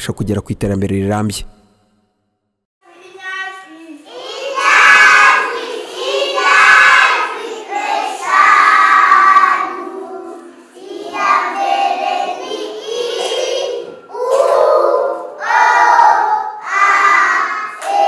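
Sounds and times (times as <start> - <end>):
young children singing together: 4.0 - 18.0.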